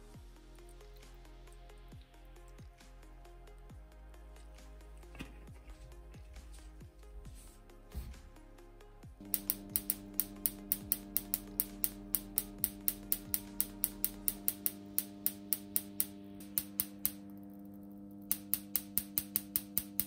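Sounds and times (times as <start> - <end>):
steady low hum: 0.0 - 20.0
sparks snapping: 9.2 - 20.0.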